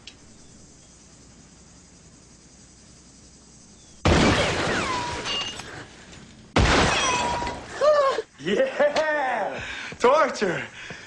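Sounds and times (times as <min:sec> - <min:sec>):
loud crash: 0:04.0 - 0:05.6, 0:06.6 - 0:07.7.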